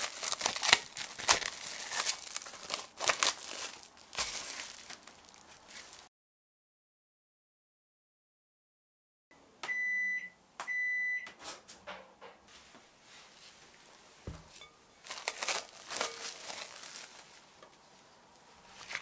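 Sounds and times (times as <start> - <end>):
cling film crinkling: 0.0 - 6.1, 13.7 - 19.0
microwave beeps: 9.6 - 11.3.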